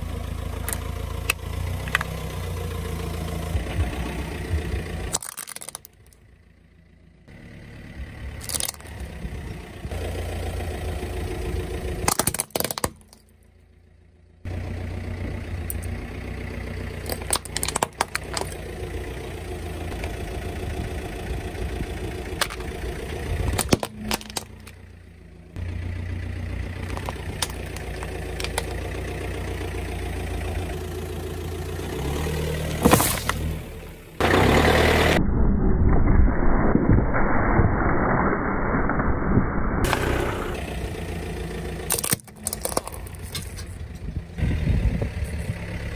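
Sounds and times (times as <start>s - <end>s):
car engine running slowly: 0.0s - 35.3s, 39.8s - 45.9s
plastic cracking under tyre: 5.1s - 6.2s, 8.4s - 9.1s, 12.0s - 13.3s, 17.0s - 18.7s, 22.4s - 22.7s, 23.4s - 24.8s, 26.7s - 29.0s, 32.6s - 33.6s, 41.9s - 43.8s
tyre rolling over asphalt: 26.7s - 29.0s, 32.6s - 33.7s.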